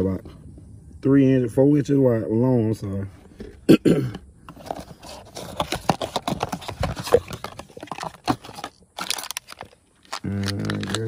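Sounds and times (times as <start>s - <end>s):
plastic packaging rustling: 4.6s - 11.0s.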